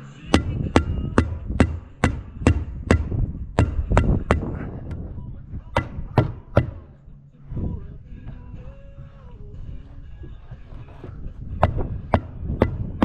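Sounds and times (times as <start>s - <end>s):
hammer tacker stapling: 5.7s - 6.8s.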